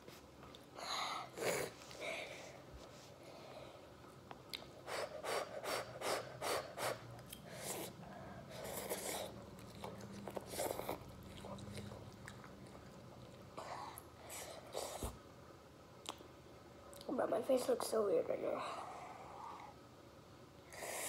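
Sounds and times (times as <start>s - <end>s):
slurping noodles: 5.3s - 9.4s
chewing: 8.5s - 14.1s.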